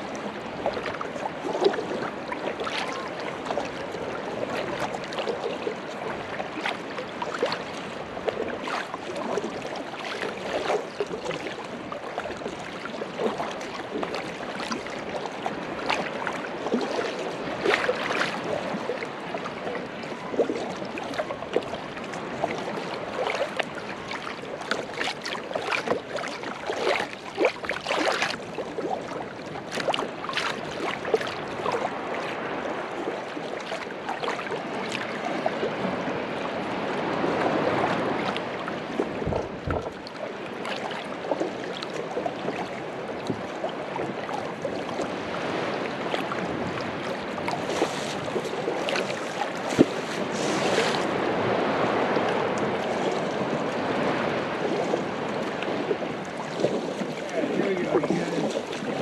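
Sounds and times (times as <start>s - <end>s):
water lapping against kayak hull: 0.0s - 59.0s.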